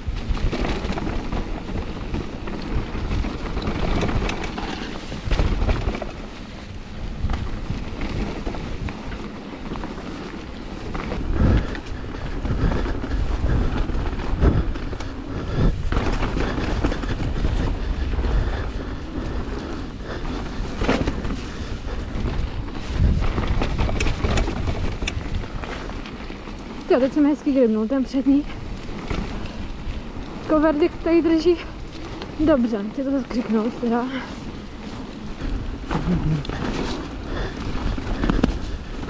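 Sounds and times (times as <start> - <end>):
bike knocking over bumps: 0.0 - 6.4, 20.2 - 26.6
wind rumbling on microphone: 0.0 - 39.0.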